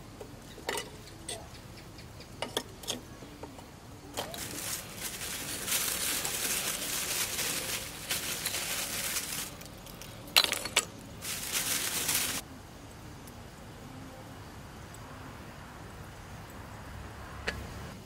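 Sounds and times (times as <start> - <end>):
food sizzling on grill: 4.0 - 9.8, 11.2 - 12.5.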